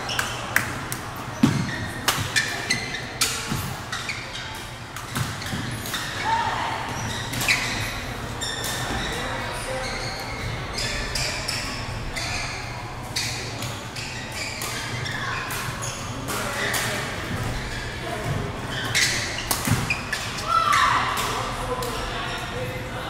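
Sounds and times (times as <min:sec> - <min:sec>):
sneakers squeaking on floor: 0:00.0 - 0:00.6, 0:01.2 - 0:21.0
background chatter: 0:00.0 - 0:23.0.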